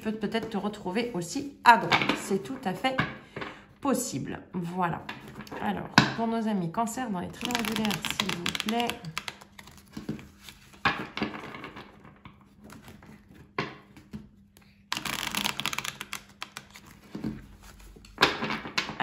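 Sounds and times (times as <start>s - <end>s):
cards being shuffled: 7.3s - 18.2s.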